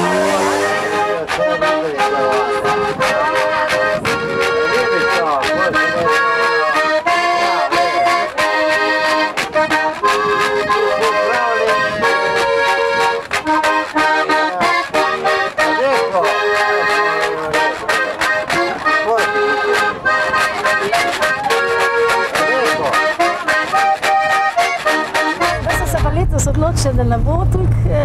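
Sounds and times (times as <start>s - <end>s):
steady clicking beat: 0.0s - 26.7s
accordion playing folk tune: 0.0s - 27.7s.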